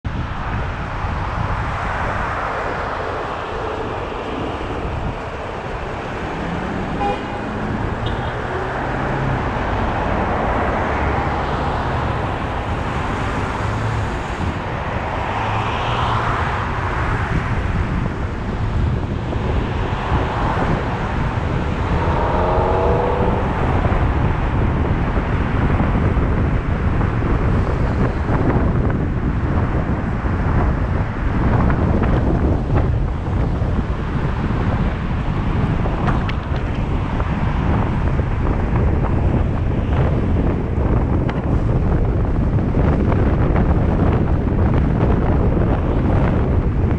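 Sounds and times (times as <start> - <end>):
car engine and road noise: 0.0 - 46.9
short rising tone: 20.0 - 25.0.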